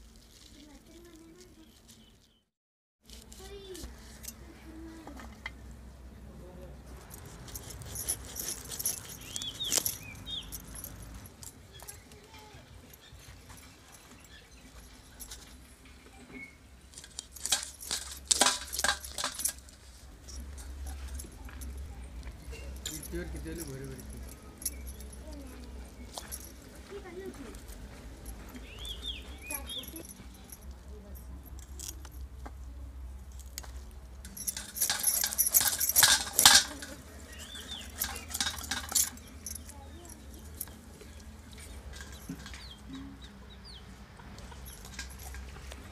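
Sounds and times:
knife scraping fish scales: 7.1 - 9.8.

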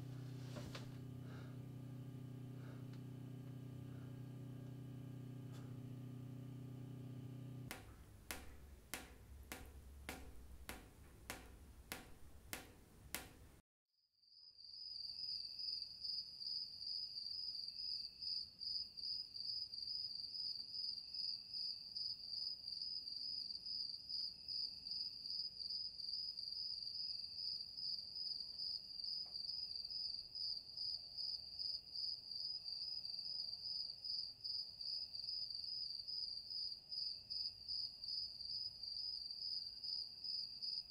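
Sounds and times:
sharp clicks: 0.0 - 13.6.

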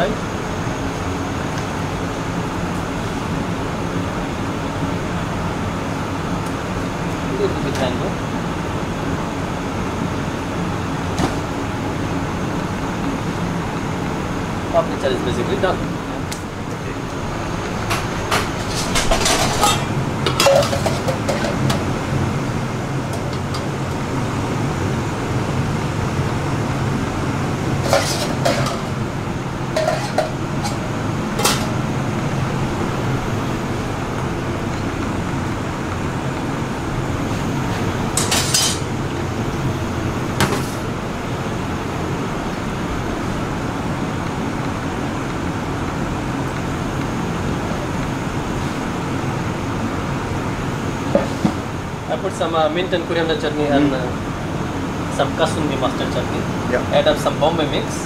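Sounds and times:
kitchen extractor hum: 0.0 - 58.0
dishes clinking on metal counter: 17.9 - 21.8, 27.8 - 29.0, 29.7 - 30.8, 31.4 - 31.7, 38.2 - 38.9.

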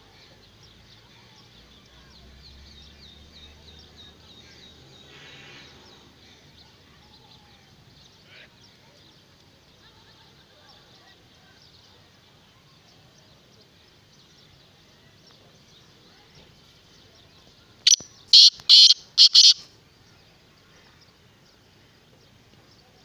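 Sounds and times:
francolin harsh grating call: 17.9 - 19.6.

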